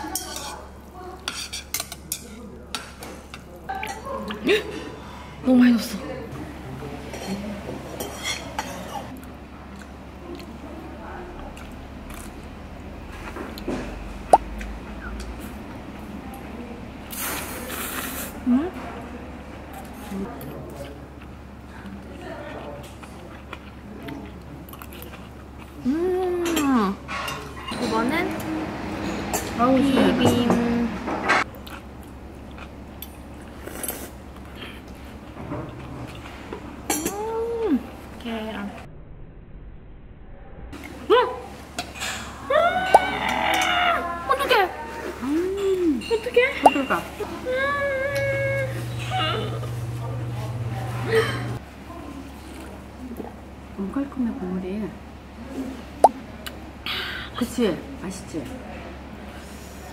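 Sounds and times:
low room hum: 0.0s - 59.9s
utensils clinking on metal bowl: 8.0s - 9.1s, 46.0s - 47.2s
chewing: 9.1s - 10.6s, 19.7s - 26.6s, 31.4s - 36.6s
person slurping noodles: 17.1s - 18.4s.

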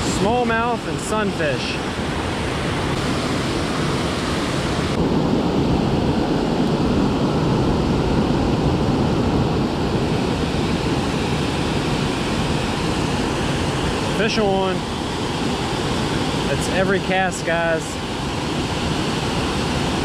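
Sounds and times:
water rushing over dam: 0.0s - 20.0s.

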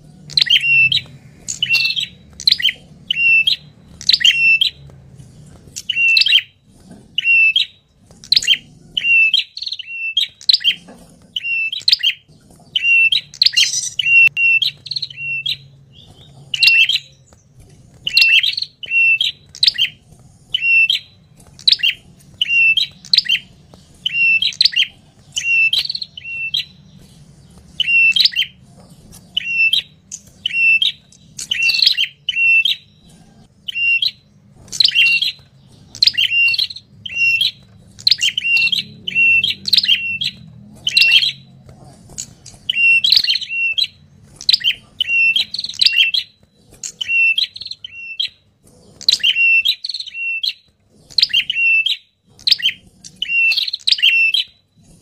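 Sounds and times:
faint low hum: 0.0s - 55.0s
bird calling sharply: 12.8s - 17.2s.

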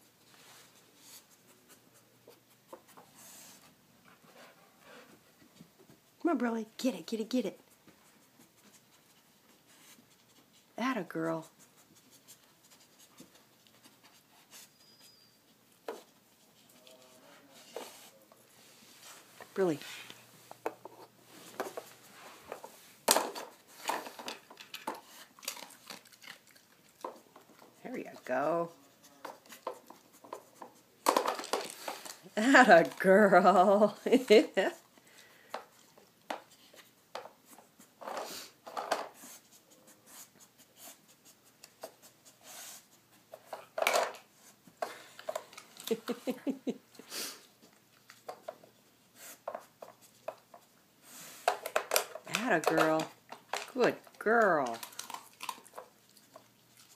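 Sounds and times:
plastic puzzle knocking and rattling: 31.0s - 32.2s, 51.5s - 53.8s.

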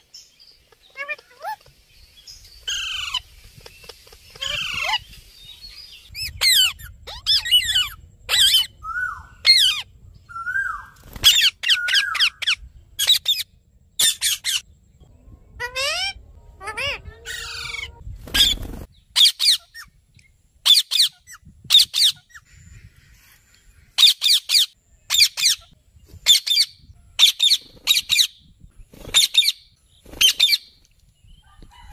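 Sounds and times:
parakeets squawking: 0.7s - 1.6s, 4.3s - 5.0s, 6.2s - 9.8s, 10.4s - 13.4s, 15.6s - 19.9s.

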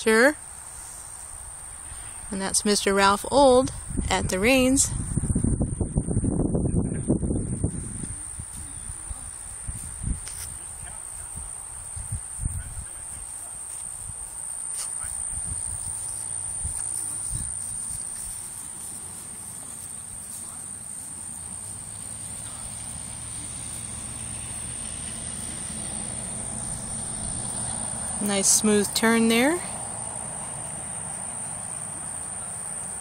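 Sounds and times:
high-pitched insect chirring: 7.6s - 33.0s.

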